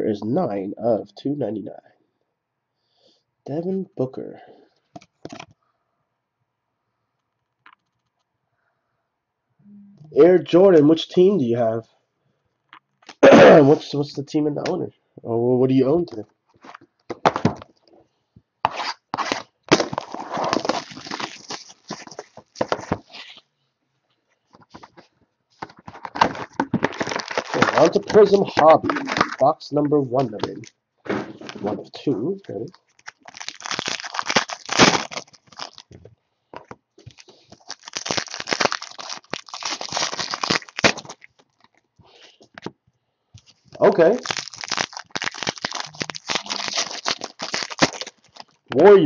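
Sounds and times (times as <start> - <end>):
foil wrappers crinkling and tearing: 18.8 - 23.2, 25.9 - 29.4, 32.7 - 36.0, 37.0 - 41.8, 43.4 - 48.6.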